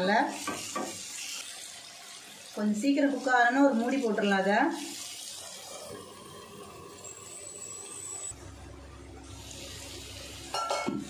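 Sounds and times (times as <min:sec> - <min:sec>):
chicken sizzling on griddle: 0:00.0 - 0:08.4, 0:09.3 - 0:11.0
low hum: 0:08.3 - 0:10.6.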